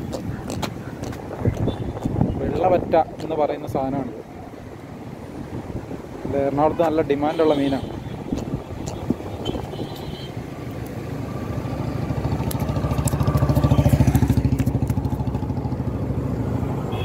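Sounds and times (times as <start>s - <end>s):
small engine passing by: 11.3s - 16.6s.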